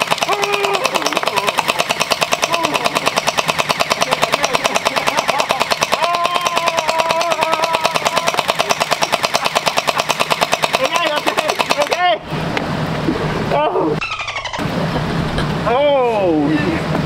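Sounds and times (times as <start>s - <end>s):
gel blaster firing full auto: 0.0s - 12.1s
person crying out: 0.2s - 1.6s, 2.4s - 3.0s, 6.0s - 8.4s.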